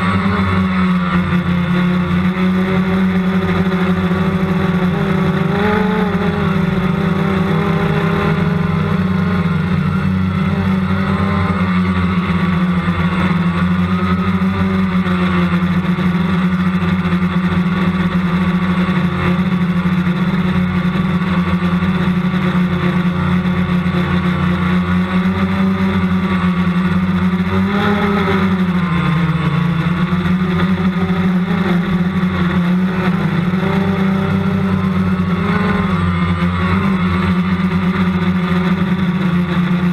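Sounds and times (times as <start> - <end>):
drone motors buzzing: 0.0 - 39.9.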